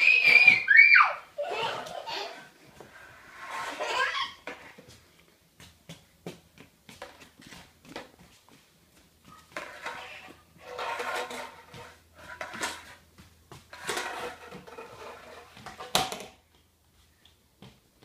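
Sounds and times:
vacuum nozzle scraping on tile: 2.8s - 4.2s, 9.6s - 12.9s, 13.7s - 15.6s
tube clacking on floor: 9.5s - 13.0s, 13.6s - 16.6s.

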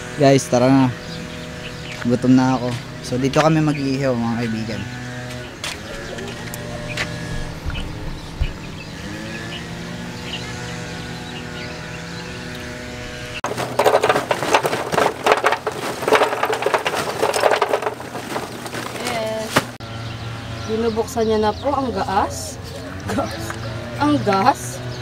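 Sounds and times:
low drone with held tones: 0.0s - 13.4s
plastic bag rustling: 13.4s - 19.8s.

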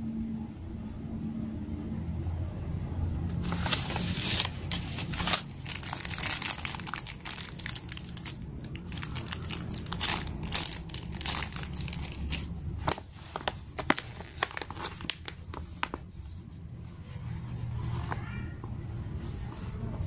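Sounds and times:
plastic bag crinkling: 3.3s - 16.1s.

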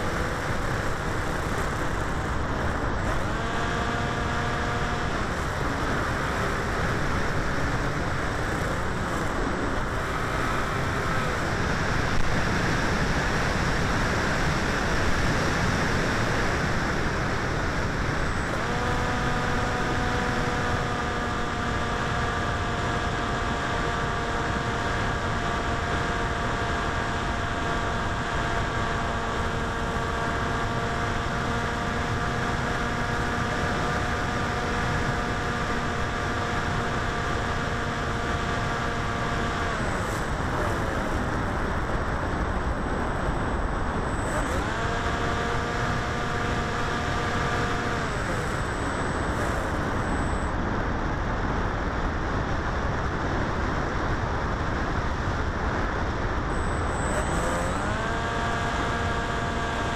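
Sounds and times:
electric motor and propeller droning: 0.0s - 59.9s.

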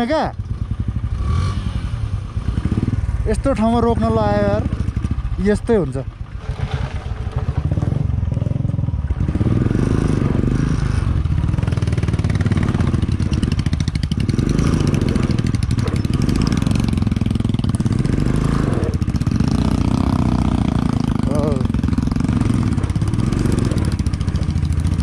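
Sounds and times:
motorcycle engine under load: 0.0s - 25.0s
person talking: 3.2s - 4.7s, 21.2s - 21.7s.

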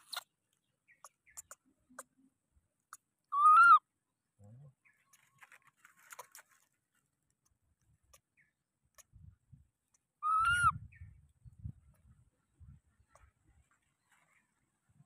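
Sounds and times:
macaque coo call: 3.3s - 3.8s, 10.2s - 10.8s.

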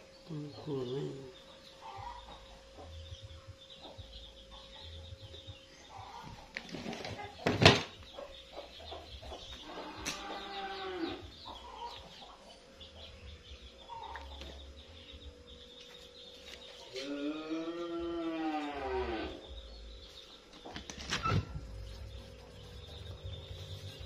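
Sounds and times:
chickens clucking: 0.5s - 14.8s.

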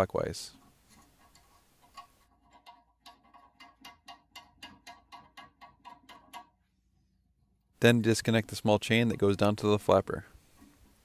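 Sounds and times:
plastic nut spinning with small clicks: 0.6s - 6.6s.

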